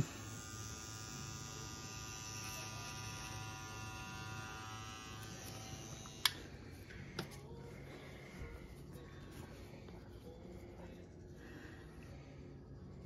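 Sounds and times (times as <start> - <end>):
tattoo machine buzzing: 0.0 - 6.5.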